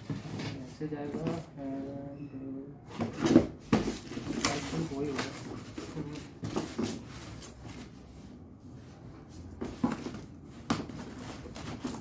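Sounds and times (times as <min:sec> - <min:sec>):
styrofoam and cardboard handled: 0:02.9 - 0:08.0, 0:09.6 - 0:12.0.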